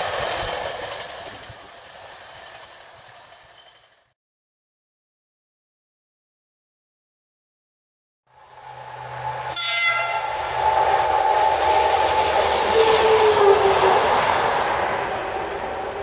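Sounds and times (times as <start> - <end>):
diesel locomotive passing: 0.0 - 4.1, 8.3 - 16.0.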